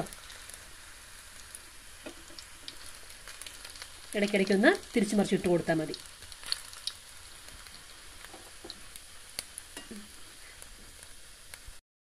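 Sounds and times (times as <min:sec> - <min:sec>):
dough frying in oil sizzling: 0:00.0 - 0:11.8.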